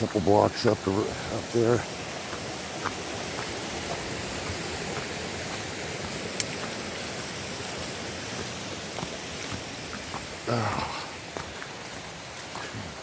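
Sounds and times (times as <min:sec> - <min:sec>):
creek water rushing: 0:00.0 - 0:13.0.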